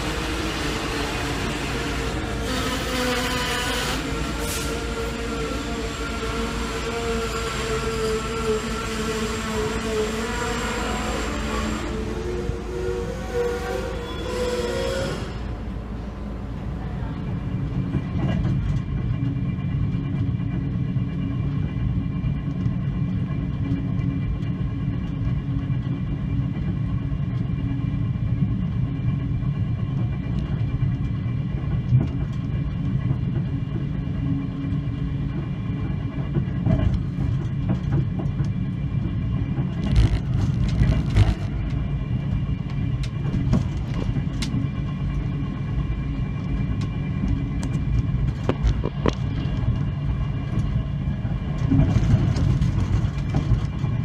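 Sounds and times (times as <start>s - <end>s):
train rumbling on track: 0.0s - 54.0s
train clatter: 16.9s - 54.0s.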